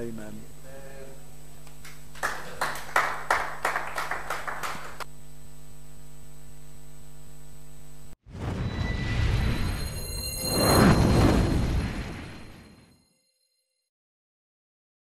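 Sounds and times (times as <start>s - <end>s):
hands clapping: 1.6s - 5.1s
low hum: 5.1s - 13.0s.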